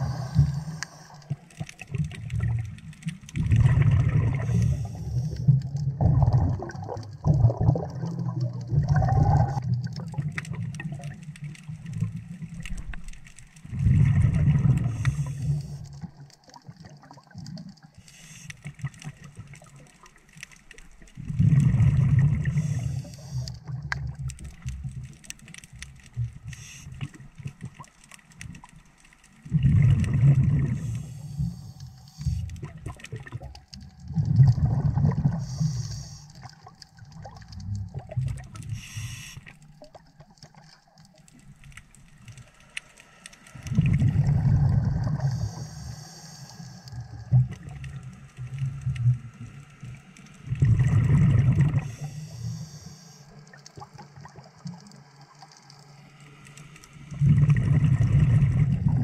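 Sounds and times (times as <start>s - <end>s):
exhaled bubbles underwater: 0.0s - 28.8s, 29.4s - 42.4s, 43.6s - 55.7s, 56.9s - 59.0s.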